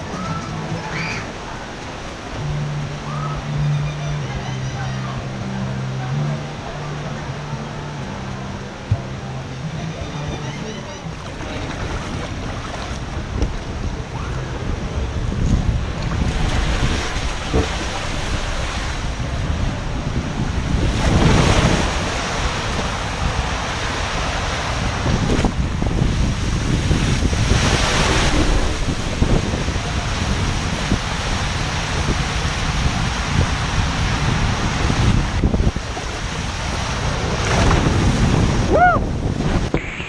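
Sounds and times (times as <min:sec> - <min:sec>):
water sluicing along slide: 0:00.0 - 0:09.8, 0:11.0 - 0:40.0
wind buffeting microphone: 0:11.1 - 0:40.0.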